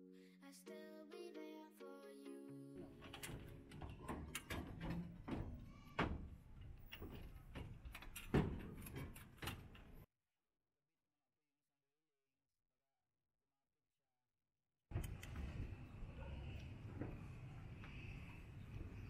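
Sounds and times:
metal rail clicks and knocks: 2.8s - 10.1s.

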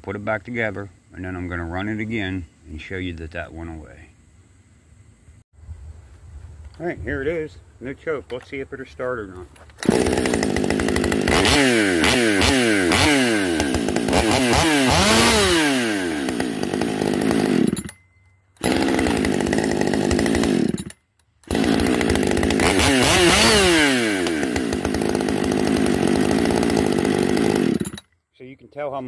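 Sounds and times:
chainsaw revving: 9.8s - 17.9s, 18.6s - 28.1s.

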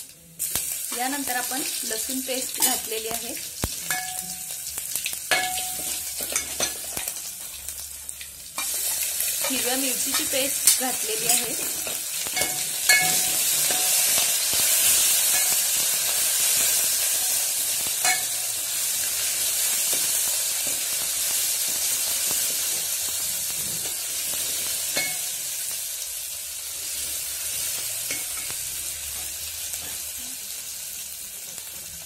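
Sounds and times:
paste sizzling in hot oil: 0.4s - 32.0s
steel ladle clinking on pot: 12.4s - 14.2s.

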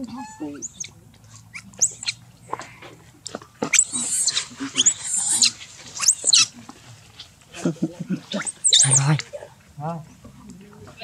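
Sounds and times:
monkey screaming: 3.7s - 6.5s, 8.3s - 9.2s.

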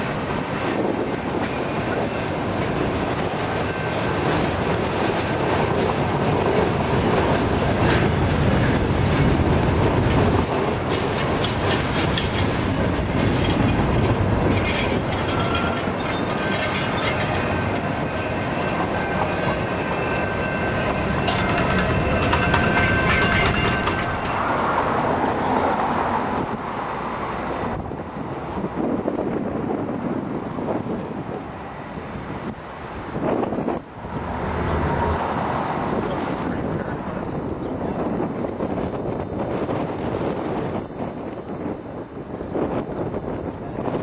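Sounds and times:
freight train rumble: 0.0s - 44.0s
wheels clacking over rail joints: 0.0s - 44.0s
high wheel squeal: 14.4s - 24.8s.

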